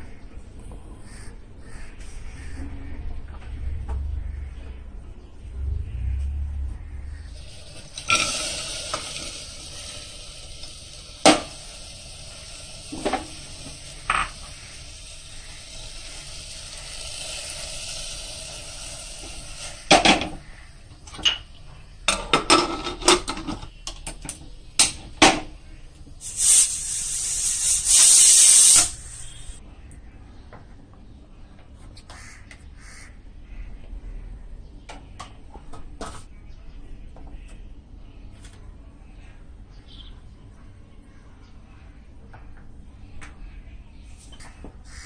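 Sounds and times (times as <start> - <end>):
pressure cooker hissing: 7.3 - 20.8, 26.2 - 29.6
metal pot and lid clanking: 7.5 - 10.0.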